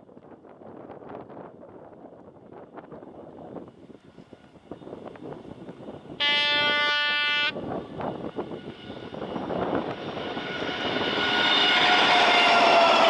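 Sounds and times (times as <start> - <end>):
diesel locomotive engine: 0.0 - 13.0
train wheels passing: 2.4 - 13.0
locomotive horn blast: 6.2 - 7.6, 10.6 - 13.0.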